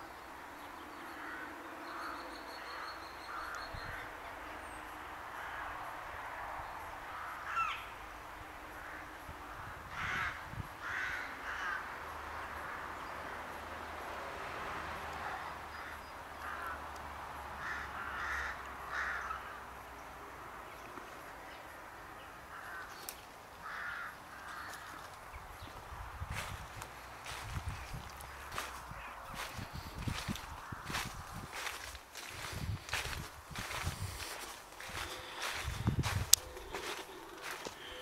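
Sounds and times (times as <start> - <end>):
crows cawing: 1.1 - 4.1, 5.4 - 5.8, 7.1 - 8.0, 8.7 - 13.2, 15.2 - 17.0, 17.6 - 19.7, 22.4 - 25.2, 26.3 - 38.0.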